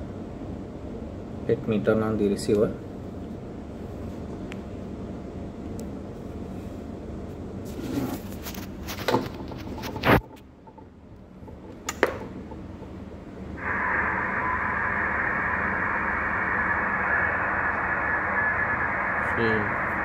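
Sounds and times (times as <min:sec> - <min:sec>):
radio static hiss: 0:08.1 - 0:10.3, 0:13.5 - 0:20.0.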